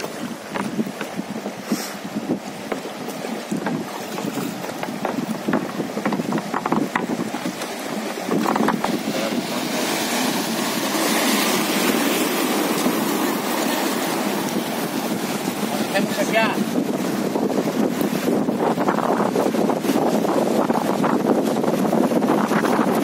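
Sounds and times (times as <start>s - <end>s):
small splashes and knocks: 0.0s - 1.6s, 2.4s - 10.2s
river rapids rushing: 0.0s - 21.3s.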